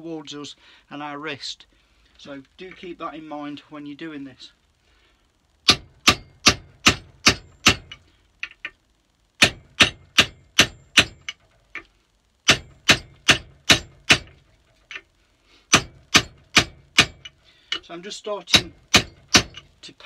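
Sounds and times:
hammer striking metal drift: 0:05.7 - 0:08.0, 0:09.4 - 0:11.4, 0:12.5 - 0:15.0, 0:15.7 - 0:17.3, 0:18.5 - 0:19.6.

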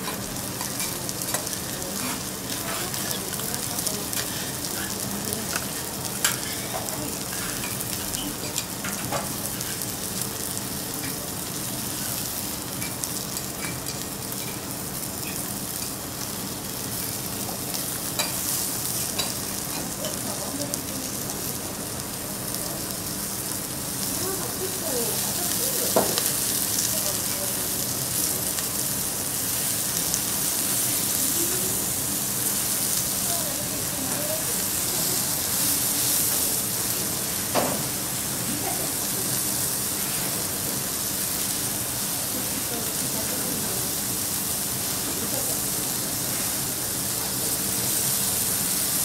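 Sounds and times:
faint voices murmuring: 0:00.0 - 0:10.2, 0:23.8 - 0:28.5
meat sizzling on a griddle: 0:00.0 - 0:49.0.

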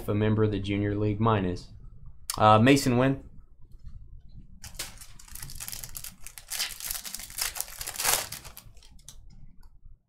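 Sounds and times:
foil wrapper tearing and crinkling: 0:04.6 - 0:09.1.

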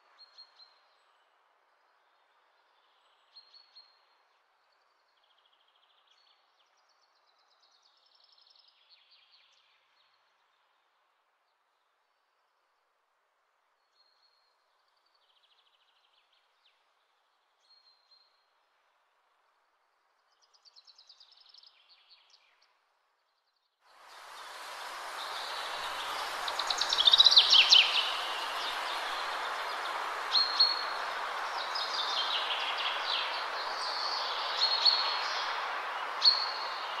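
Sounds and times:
steady rushing noise: 0:24.0 - 0:37.0
birds chirping and trilling: 0:24.4 - 0:37.0.

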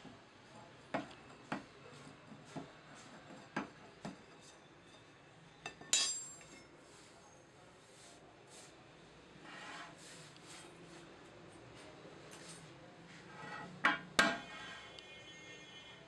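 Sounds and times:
sharp metallic clank: 0:05.7 - 0:06.6.

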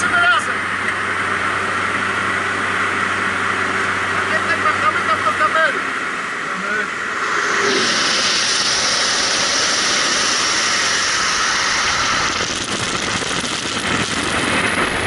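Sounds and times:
propeller engine noise: 0:00.0 - 0:15.0
wind rushing: 0:06.9 - 0:15.0.

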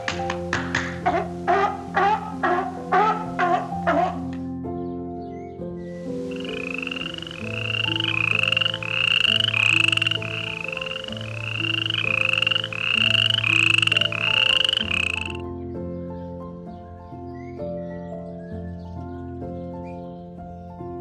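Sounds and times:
animal rasping calls: 0:00.0 - 0:04.5, 0:06.2 - 0:15.4
light background music: 0:00.0 - 0:21.0.

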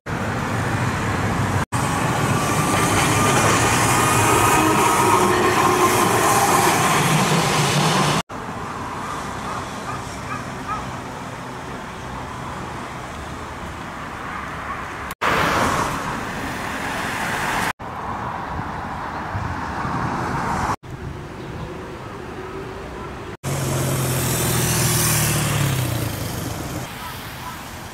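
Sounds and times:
streetcar running past: 0:00.1 - 0:13.9, 0:21.6 - 0:27.1
road traffic noise: 0:00.1 - 0:27.9.

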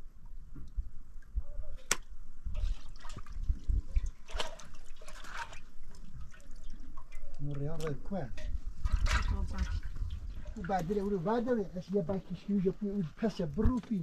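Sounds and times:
water splashing and pouring: 0:02.4 - 0:08.0, 0:08.7 - 0:11.6.

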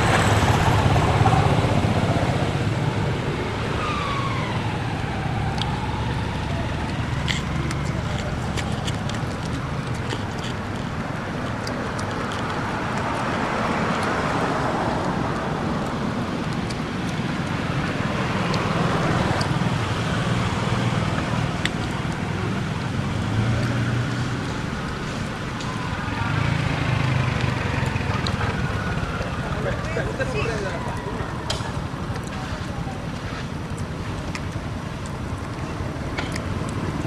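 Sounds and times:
outdoor background rumble: 0:00.0 - 0:37.0.

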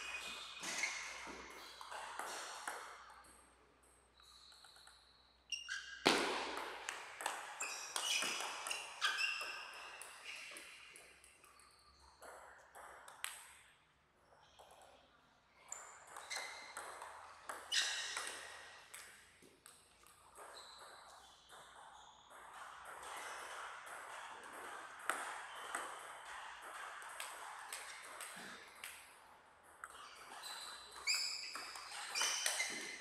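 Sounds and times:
table tennis ball hitting paddles: 0:00.0 - 0:04.0, 0:06.0 - 0:13.7, 0:15.8 - 0:33.0
ball bouncing on table: 0:00.1 - 0:03.4, 0:06.0 - 0:11.1, 0:16.1 - 0:21.6.

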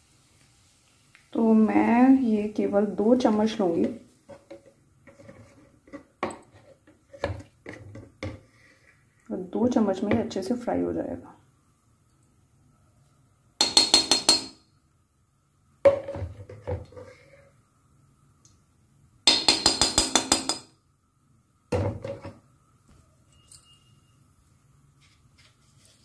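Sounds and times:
metal spoon clinking against iron pan: 0:13.6 - 0:14.6, 0:19.3 - 0:20.7.

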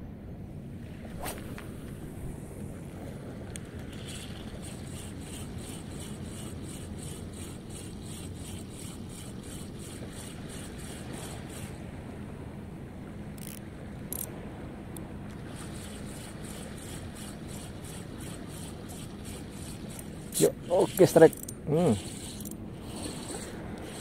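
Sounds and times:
fishing reel ticking: 0:03.9 - 0:11.8, 0:13.4 - 0:14.3, 0:15.5 - 0:24.0.

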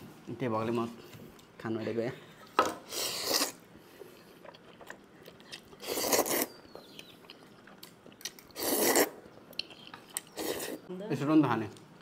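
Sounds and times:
person slurping noodles: 0:02.9 - 0:03.6, 0:05.8 - 0:06.6, 0:08.5 - 0:09.2.

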